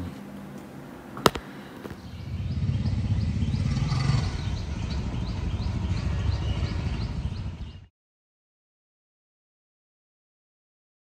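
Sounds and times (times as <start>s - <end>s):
low rumbling outdoor noise: 0.0s - 7.9s.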